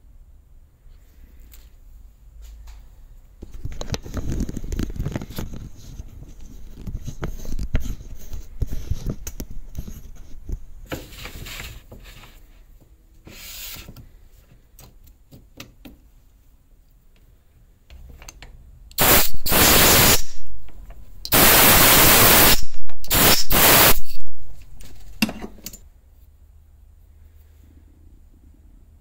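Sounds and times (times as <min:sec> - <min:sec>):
short hissing scrapes: 0:13.3 - 0:13.9, 0:19.0 - 0:20.4, 0:21.3 - 0:24.3.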